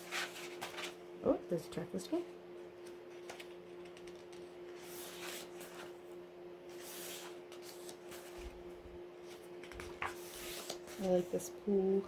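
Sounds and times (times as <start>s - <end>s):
paper pages turning: 0.0s - 1.0s, 3.2s - 6.0s, 6.7s - 8.6s, 9.2s - 11.3s
faint steady hum: 0.0s - 12.0s.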